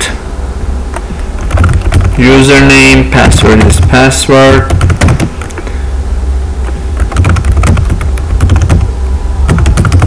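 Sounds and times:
low hum: 0:00.0 - 0:10.0
keyboard keys clicking: 0:01.4 - 0:02.2, 0:04.7 - 0:05.6, 0:06.7 - 0:08.9, 0:09.5 - 0:10.0.

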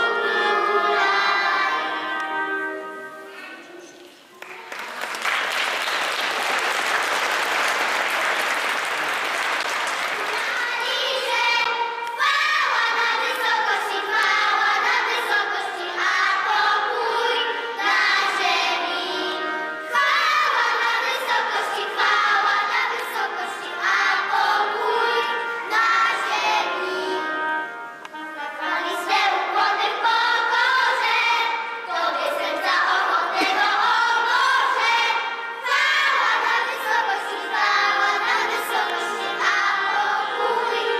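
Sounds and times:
children's choir singing: 0:00.0 - 0:40.9
applause: 0:04.3 - 0:10.9.

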